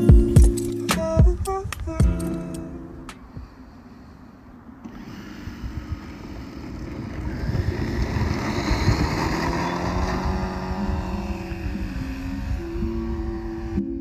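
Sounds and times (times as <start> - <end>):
model airplane motor and propeller: 4.8 - 14.0.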